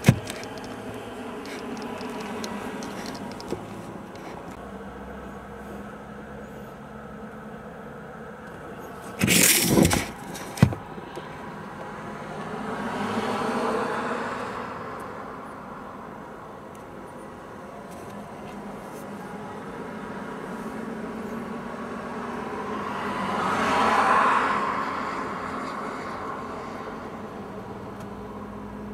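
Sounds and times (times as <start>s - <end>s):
vehicle passing: 10.8s - 15.0s, 19.9s - 28.8s.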